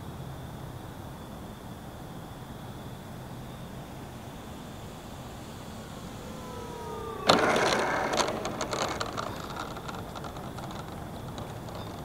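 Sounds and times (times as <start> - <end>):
electric motor and propeller whine: 3.4 - 12.0
plane rolling with rattling: 5.3 - 12.0
wheels clattering on asphalt: 6.1 - 12.0.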